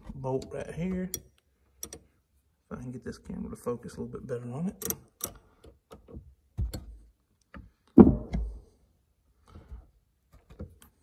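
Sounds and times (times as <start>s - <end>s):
wrench clicking on metal: 1.1s - 2.1s, 4.8s - 5.4s
loud thump: 8.0s - 8.6s.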